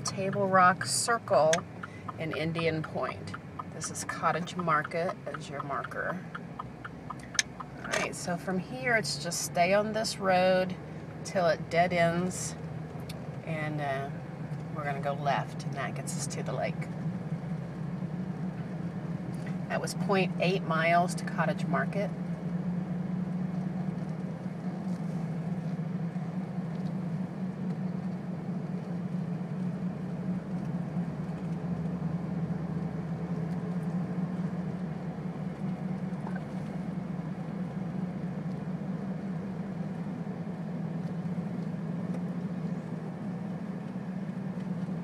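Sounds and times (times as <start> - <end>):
engine and tyre drone: 0.0 - 45.0.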